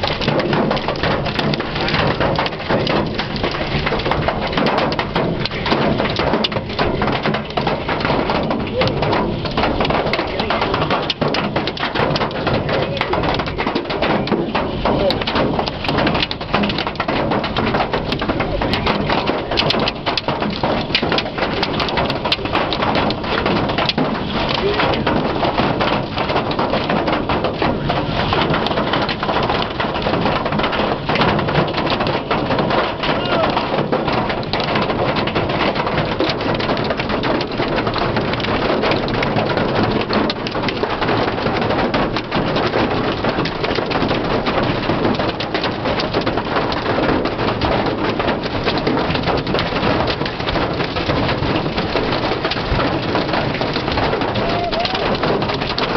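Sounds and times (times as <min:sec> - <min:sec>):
hailstones hitting hard surfaces: 0:00.0 - 0:55.9
heavy rain on car roof: 0:00.0 - 0:55.9.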